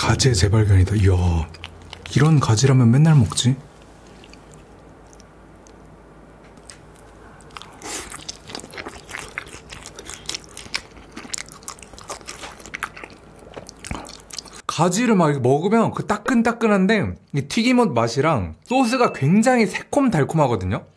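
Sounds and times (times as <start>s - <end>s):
crisp chewing: 0.8s - 14.7s.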